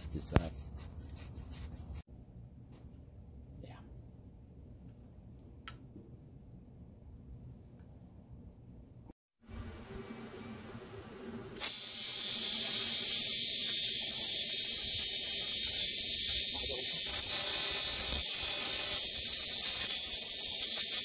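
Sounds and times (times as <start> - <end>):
welding arc hissing: 11.6 - 21.0.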